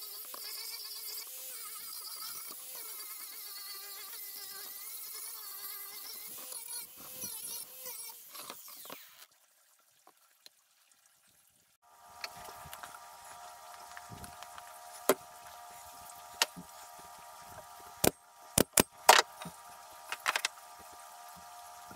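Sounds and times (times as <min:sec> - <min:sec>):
angle grinder whining: 0:12.0 - 0:21.9.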